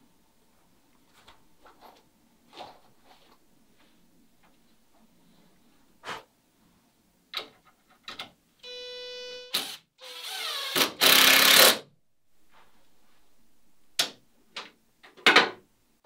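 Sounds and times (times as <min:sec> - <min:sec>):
power drill whining: 0:09.5 - 0:11.8
drill grinding into wood: 0:09.6 - 0:11.8.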